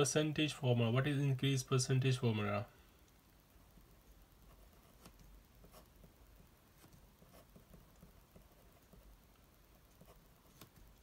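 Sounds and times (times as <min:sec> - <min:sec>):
pen scratching on paper: 0:04.5 - 0:06.2, 0:06.8 - 0:09.1.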